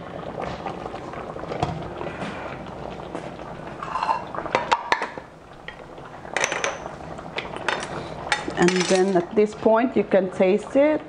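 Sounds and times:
stew simmering and stirring: 0.0 - 11.0.

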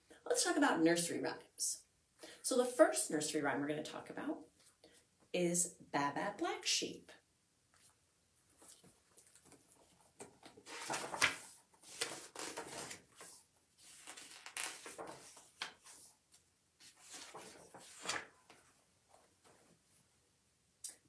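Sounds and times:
book pages turning: 7.7 - 18.7.

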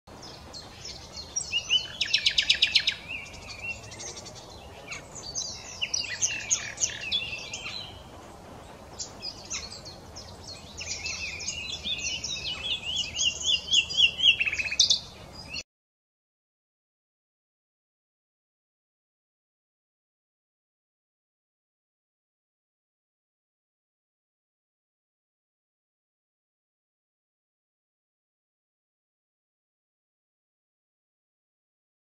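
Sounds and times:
nightingale singing: 0.1 - 15.6.

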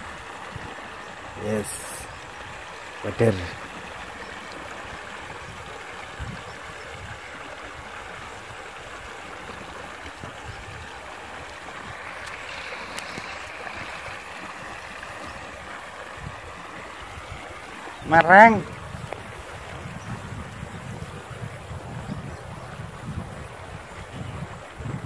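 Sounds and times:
water rushing over small drop: 8.4 - 20.7.

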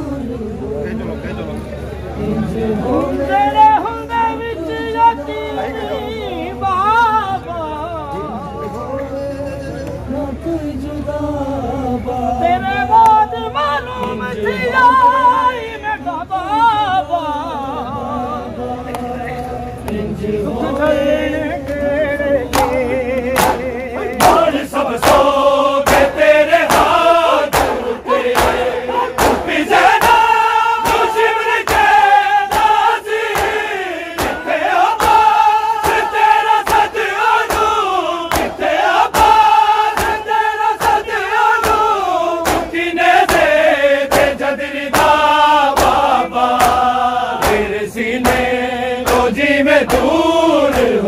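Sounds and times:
men chanting a lament: 0.0 - 51.0
hands slapping bare chests: 23.4 - 23.6, 25.9 - 30.2, 32.5 - 33.6, 34.2 - 34.4, 35.0 - 39.4, 40.0 - 40.2, 41.6 - 43.5, 44.1 - 45.2, 45.8 - 48.5, 49.1 - 49.3.

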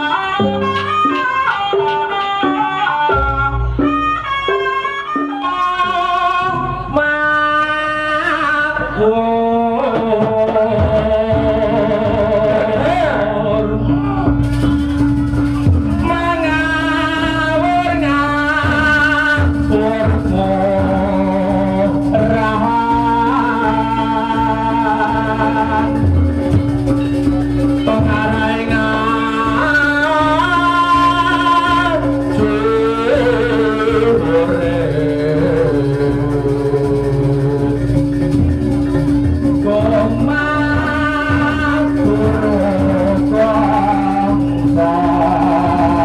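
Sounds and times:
drum strokes: 7.6 - 46.0
woman singing: 27.8 - 37.8, 39.6 - 46.0.

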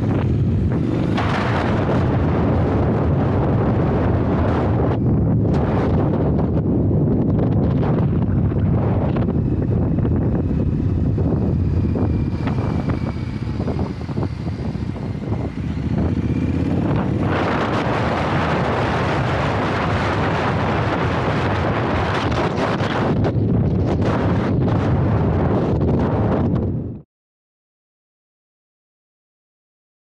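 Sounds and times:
motorcycle engine running: 0.0 - 26.4
wind rushing on microphone: 0.0 - 27.0.

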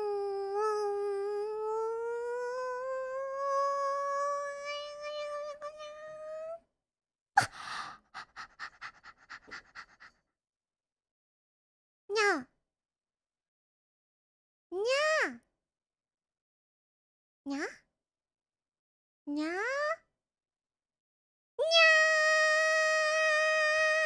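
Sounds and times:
short breathy sounds: 7.4 - 10.2.

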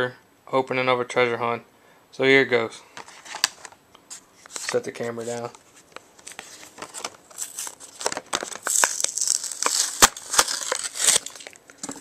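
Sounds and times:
plastic crackling: 3.0 - 3.8, 4.4 - 12.0
cardboard ripping: 6.3 - 11.6.

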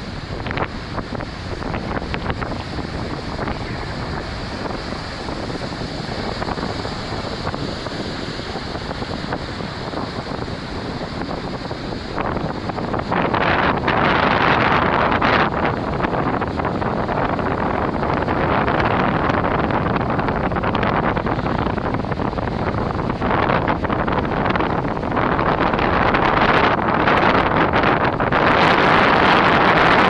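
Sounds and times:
surf breaking on rocks: 0.0 - 30.0
wind buffeting microphone: 0.0 - 30.0.

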